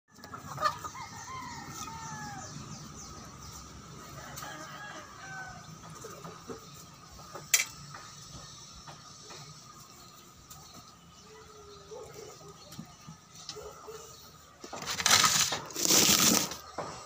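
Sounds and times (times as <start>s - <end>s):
chickens clucking: 0.1s - 17.0s
rooster crowing: 0.6s - 2.6s, 4.0s - 5.8s.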